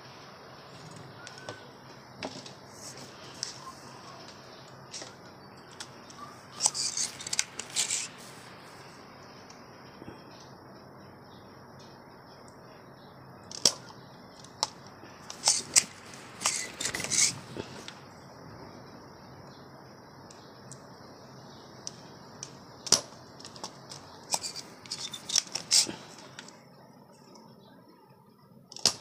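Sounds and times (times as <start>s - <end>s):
steady low hiss: 0.0s - 29.0s
metal hand tools clicking: 6.6s - 8.1s, 24.3s - 25.9s.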